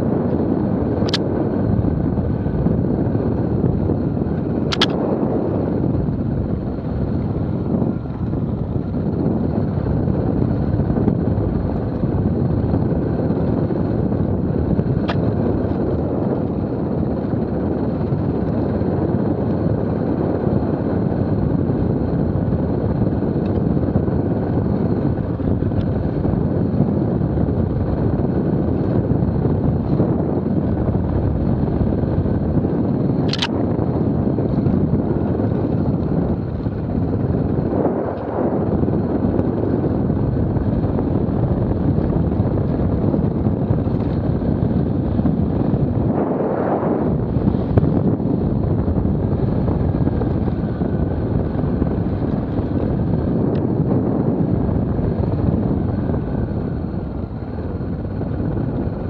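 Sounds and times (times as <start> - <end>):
motorcycle engine rumble: 0.0 - 59.0
wind on microphone: 0.0 - 59.0
sharp clicks: 1.0 - 1.2, 4.7 - 5.0, 33.3 - 33.5.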